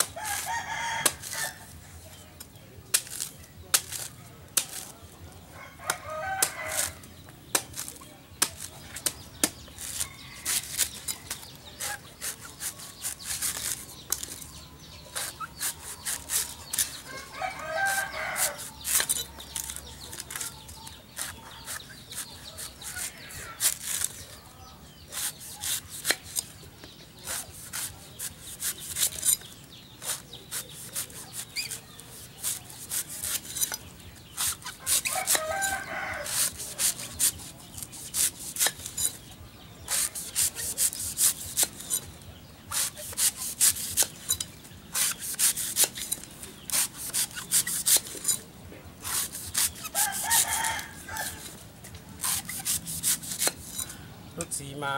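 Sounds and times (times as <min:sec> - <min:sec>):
machete chopping coconut husk: 0:00.0 - 0:01.8, 0:02.4 - 0:05.1, 0:05.8 - 0:54.0
rooster crowing: 0:05.5 - 0:07.0, 0:17.1 - 0:18.8, 0:34.8 - 0:36.4, 0:49.9 - 0:51.4.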